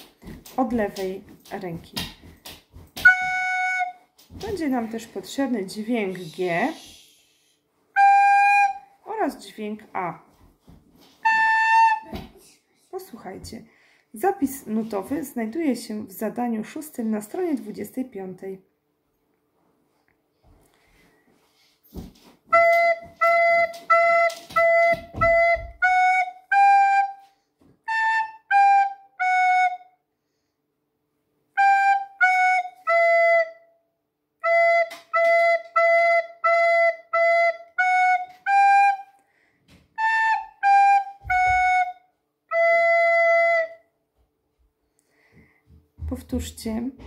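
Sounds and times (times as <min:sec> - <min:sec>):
recorder playing folk tune: 0:03.0 - 0:04.4, 0:08.0 - 0:08.9, 0:11.2 - 0:12.3, 0:22.4 - 0:27.3, 0:27.9 - 0:29.9, 0:31.6 - 0:33.6, 0:34.4 - 0:39.1, 0:40.0 - 0:43.8.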